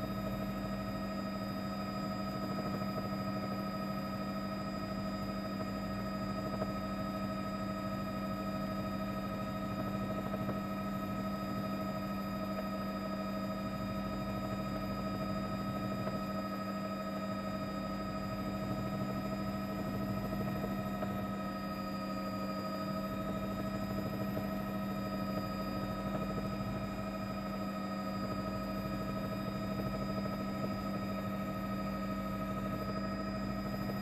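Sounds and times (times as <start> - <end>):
helicopter drone: 0.0 - 34.0.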